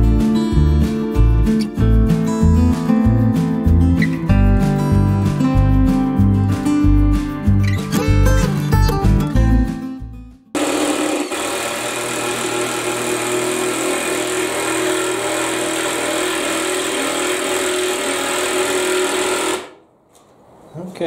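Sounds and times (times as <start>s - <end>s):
guitar music: 0.0s - 10.6s
motor running steadily: 10.6s - 19.8s.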